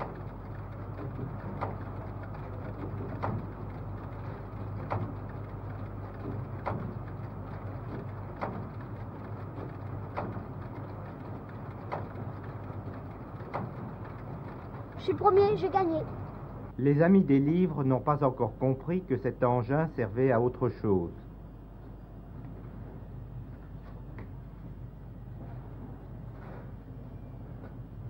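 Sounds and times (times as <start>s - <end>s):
slide projector mechanical clunk: 0.0s - 15.5s
projector fan hum: 0.0s - 28.0s.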